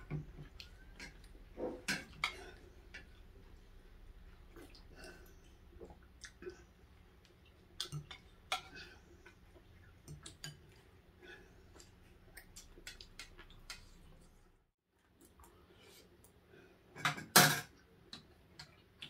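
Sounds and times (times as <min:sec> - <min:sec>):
clicks and taps of eating: 0:07.2 - 0:08.7, 0:10.0 - 0:10.8, 0:11.8 - 0:13.9, 0:18.0 - 0:19.0.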